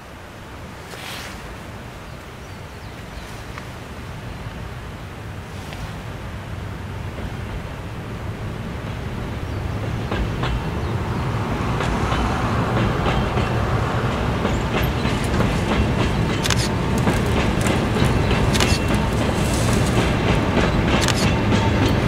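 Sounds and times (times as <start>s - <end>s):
train low rumble: 0.0s - 22.0s
wheel clicks over rail joints: 14.4s - 22.0s.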